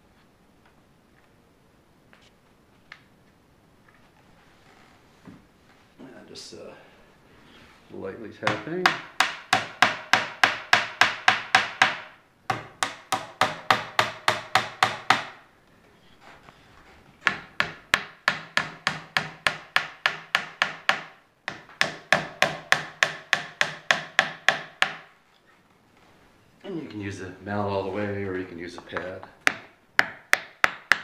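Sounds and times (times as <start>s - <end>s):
mallet tapping wood: 8.4s - 15.4s, 17.2s - 25.1s, 28.8s - 31.0s.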